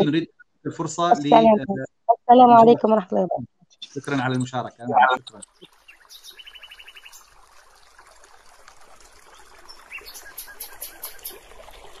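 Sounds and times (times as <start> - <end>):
birds chirping: 3.8 - 7.2, 9.7 - 12.0
trickling water: 5.0 - 12.0.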